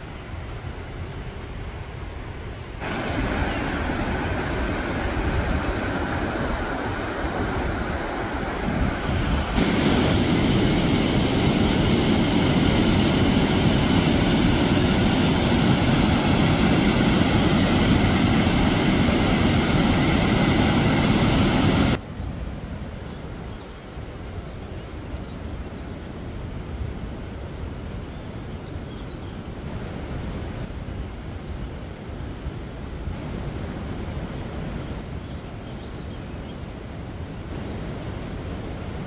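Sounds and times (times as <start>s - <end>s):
whitewater rushing: 2.8s - 22.0s.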